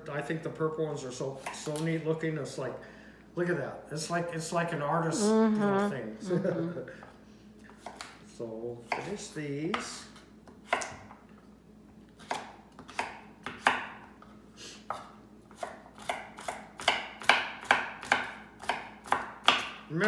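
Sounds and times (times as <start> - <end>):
knife chopping on wooden board: 7.7 - 8.2, 8.8 - 11.2, 12.2 - 14.2, 14.8 - 19.9.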